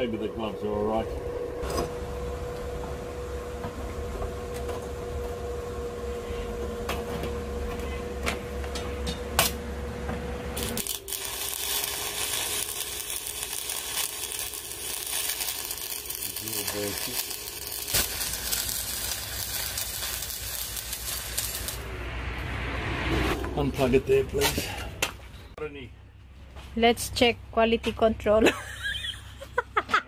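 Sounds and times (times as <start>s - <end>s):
arc welder humming: 0.0s - 22.6s
welding arc crackling sizzle: 10.4s - 21.9s.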